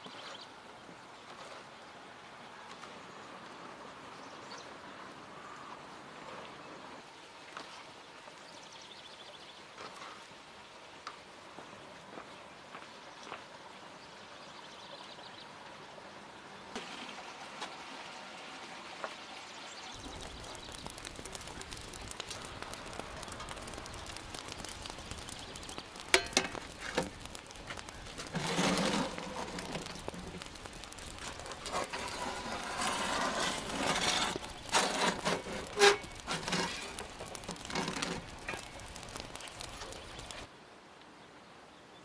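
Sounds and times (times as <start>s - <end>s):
wood fire crackling: 19.9s - 40.5s
metal trays scraping on stone: 28.2s - 29.9s, 31.6s - 38.7s.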